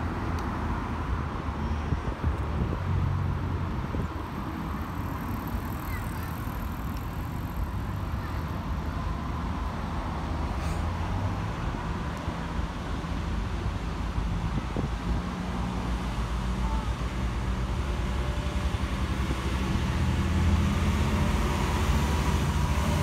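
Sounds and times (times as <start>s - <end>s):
cars passing: 0.0s - 23.0s
road traffic rumble: 0.0s - 23.0s.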